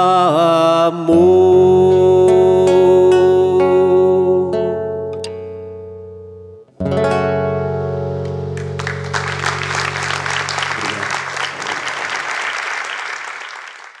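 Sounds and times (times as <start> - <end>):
acoustic guitar chords: 0.0 - 12.1
audience applause: 8.6 - 14.0.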